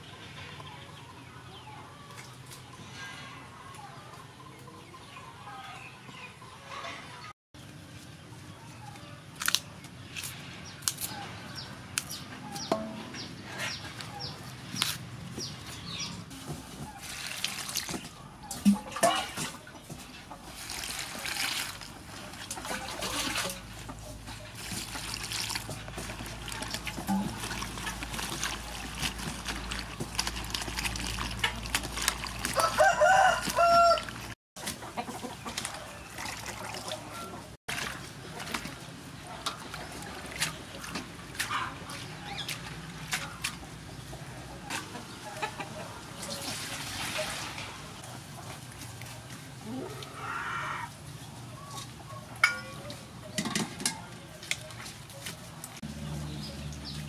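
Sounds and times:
chickens clucking: 0.0s - 7.4s, 11.0s - 17.1s, 18.0s - 20.5s, 31.1s - 55.7s
hands rustling flowers in metal bowl: 12.0s - 34.8s
rooster crowing: 32.5s - 34.2s.

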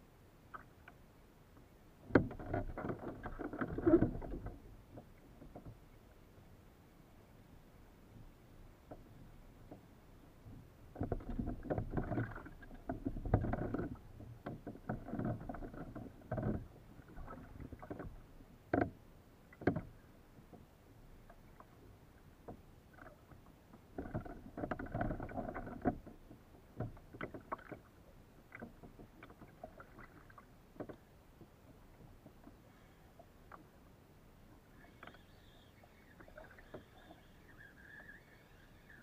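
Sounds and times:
water splashing against kayak hull: 2.0s - 6.0s, 10.5s - 39.0s.

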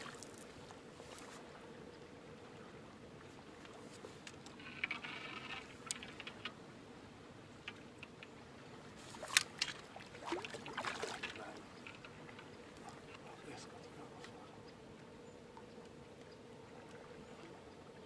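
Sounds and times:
fish splashing in water: 9.1s - 11.4s
fishing tackle clicks and knocks: 11.2s - 13.2s.

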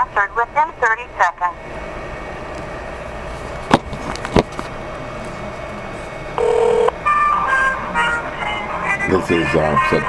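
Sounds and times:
phone line hiss: 6.4s - 6.9s
short steady phone tone: 6.4s - 7.0s.

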